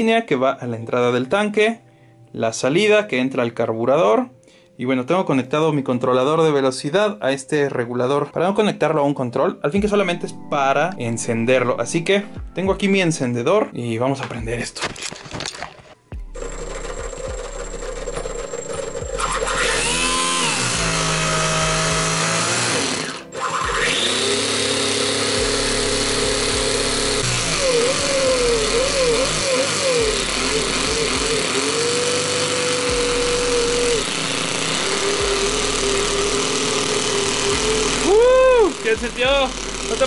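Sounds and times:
electric starter motor whine: 16.2 - 40.0.

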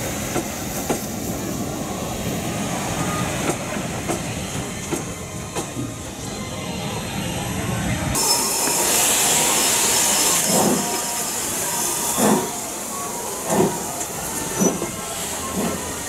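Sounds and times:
steam hissing: 8.1 - 16.0
steam engine exhaust beats: 8.2 - 16.0.

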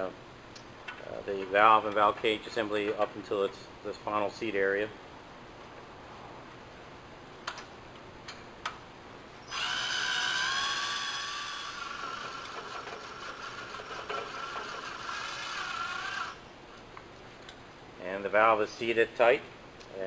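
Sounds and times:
cordless drill whining: 9.5 - 16.4.

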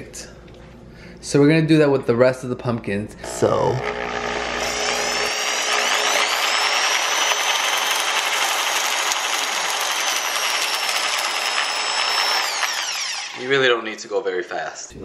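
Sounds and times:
electric drill whining: 3.2 - 13.8.

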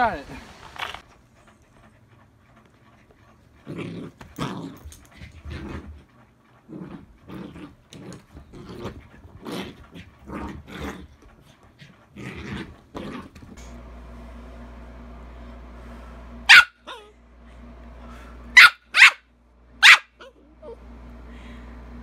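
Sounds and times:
puppy growling: 0.8 - 13.7.

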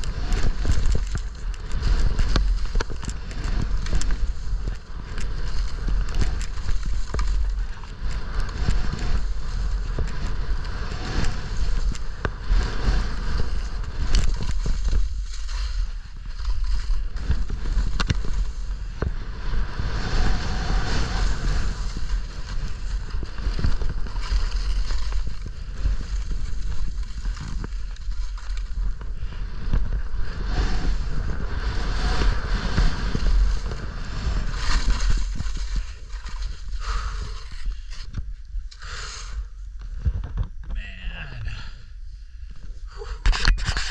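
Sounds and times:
wind buffeting microphone: 0.0 - 37.7
skis scraping over snow: 0.0 - 38.1, 43.5 - 43.9.

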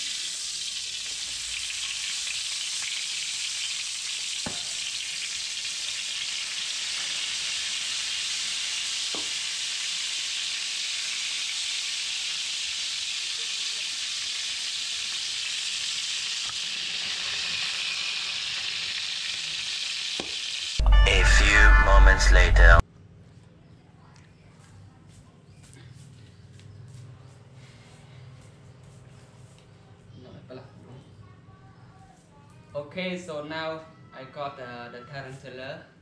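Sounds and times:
food sizzling in hot oil: 0.0 - 20.8.

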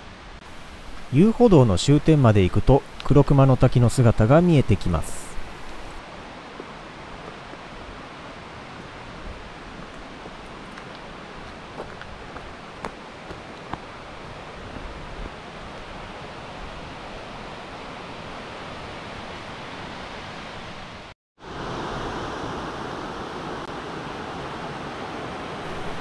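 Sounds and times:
waterfall rushing: 0.5 - 6.0, 25.5 - 26.0.

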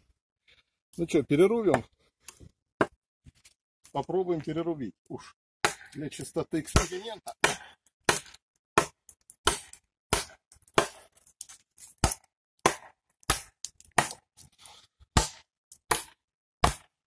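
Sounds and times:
knife chopping into dry branch: 5.6 - 11.1, 12.0 - 14.2, 15.1 - 17.0.

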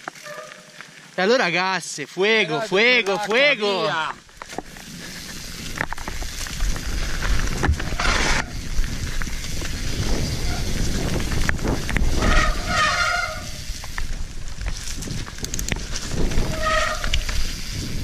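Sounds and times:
tyre and wind rumble: 4.1 - 18.0
bike rattling and knocking: 4.2 - 18.0.

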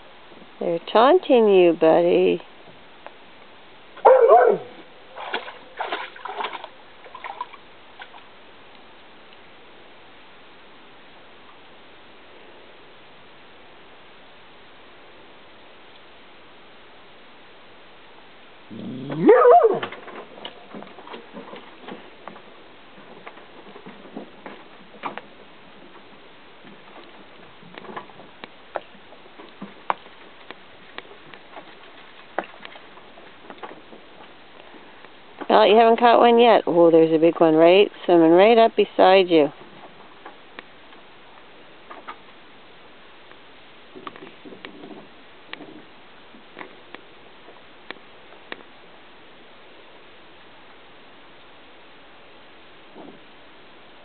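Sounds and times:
water splashes and drips: 3.1 - 9.5, 19.1 - 36.5
dog barking: 4.0 - 4.8, 19.2 - 19.9
water splashing: 4.0 - 8.4.

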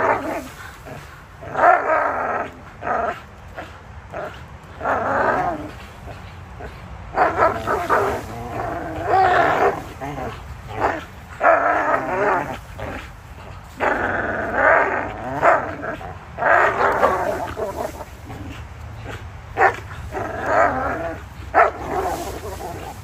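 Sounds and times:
dogs growling: 0.0 - 23.0
dog barks: 7.1 - 8.3, 19.0 - 19.9, 21.5 - 23.0.

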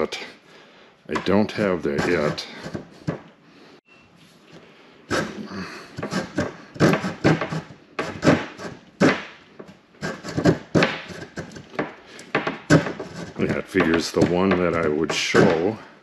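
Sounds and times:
hand saw cutting wood: 1.2 - 3.2, 5.1 - 9.3, 10.0 - 15.8.

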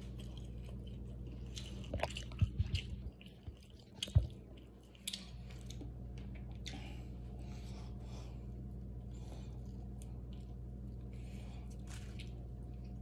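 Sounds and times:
low room hum: 0.0 - 13.0
person chewing food: 0.0 - 13.0.

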